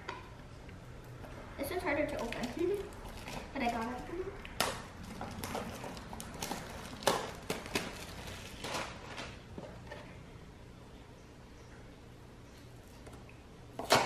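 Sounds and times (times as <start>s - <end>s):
foil and cardboard crinkling: 5.0s - 9.5s.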